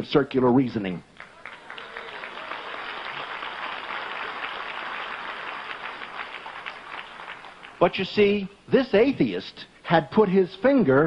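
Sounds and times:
audience applauding: 0:01.2 - 0:08.1.

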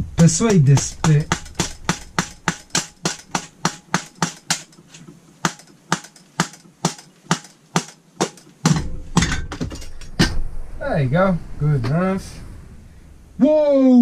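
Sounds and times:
rubber mallet tapping metal: 0:00.0 - 0:10.4.

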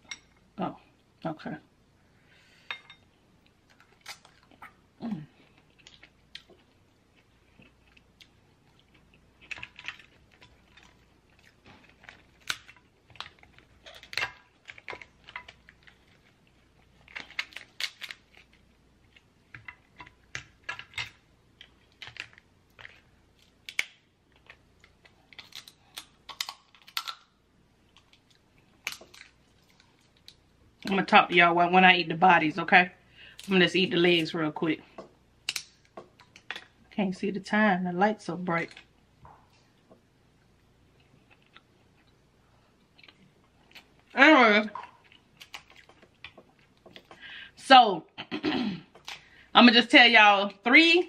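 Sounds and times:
crab shell cracking: 0:09.0 - 0:18.7, 0:19.5 - 0:30.4, 0:35.4 - 0:36.8
chewing: 0:44.8 - 0:47.2.

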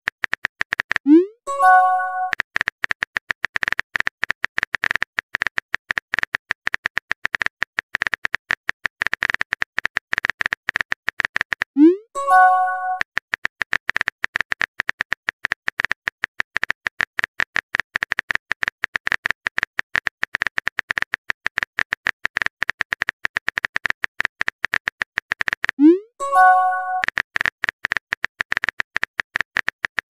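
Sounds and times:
keyboard typing clicks: 0:01.1 - 0:02.4, 0:11.8 - 0:13.0, 0:25.8 - 0:27.1
short multi-tone chime: 0:01.5 - 0:02.3, 0:12.2 - 0:13.0, 0:26.2 - 0:27.0.

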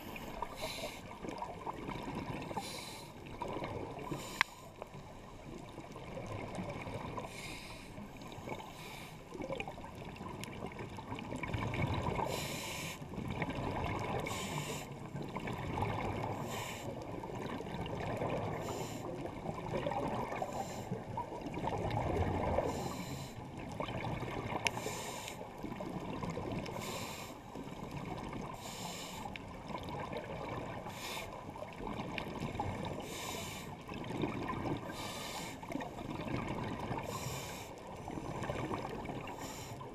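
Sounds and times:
regulator breathing hiss: 0:00.0 - 0:01.1, 0:07.3 - 0:08.0, 0:12.3 - 0:13.0, 0:14.3 - 0:15.0, 0:16.4 - 0:16.9, 0:24.7 - 0:25.4, 0:26.8 - 0:27.4, 0:28.6 - 0:29.3, 0:30.8 - 0:31.4, 0:33.0 - 0:33.8, 0:34.9 - 0:35.6, 0:37.0 - 0:37.8
bubbling underwater: 0:21.2 - 0:22.7, 0:33.9 - 0:34.9.

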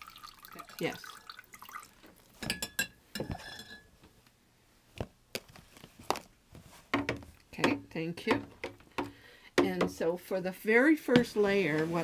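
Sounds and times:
metal spoon clinking on glass: 0:02.4 - 0:03.8.

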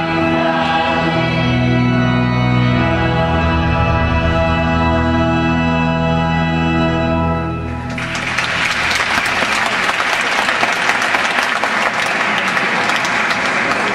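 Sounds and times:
held music chord: 0:00.0 - 0:09.9
audience applause: 0:07.9 - 0:13.9.

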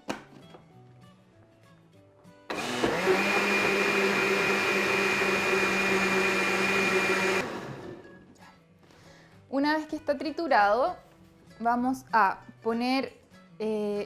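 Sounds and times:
blender running: 0:02.5 - 0:08.0.

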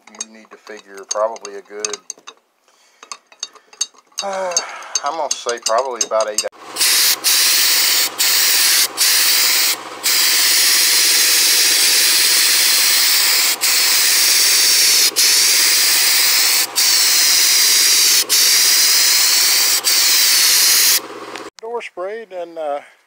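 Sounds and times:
spray gun hissing: 0:06.7 - 0:21.0.

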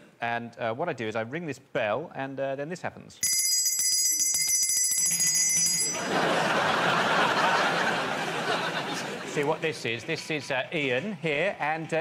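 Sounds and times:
handbell ringing: 0:03.2 - 0:06.1
audience laughing: 0:06.0 - 0:12.0.

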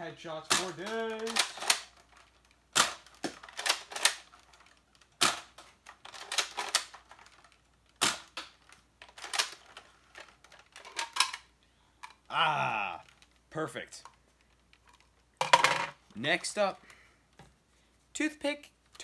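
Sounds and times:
toy blaster plastic clacks: 0:00.5 - 0:11.4.

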